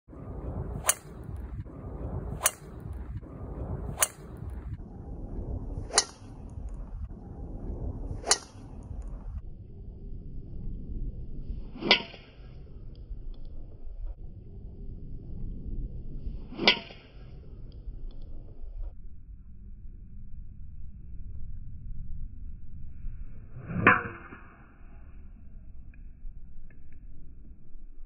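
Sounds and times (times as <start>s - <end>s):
outdoor background noise: 0.0s - 28.0s
golf drivers striking balls: 0.7s - 1.4s, 2.3s - 3.0s.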